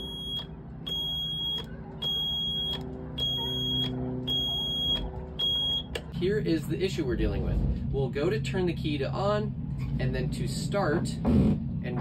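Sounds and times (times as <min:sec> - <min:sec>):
alarm buzzer beeping: 0:00.0 - 0:05.9
steady low hum: 0:00.0 - 0:12.0.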